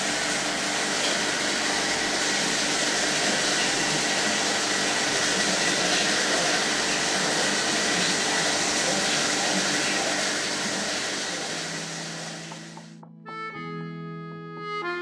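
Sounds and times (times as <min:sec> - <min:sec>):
film projector whirring: 0:00.0 - 0:12.9.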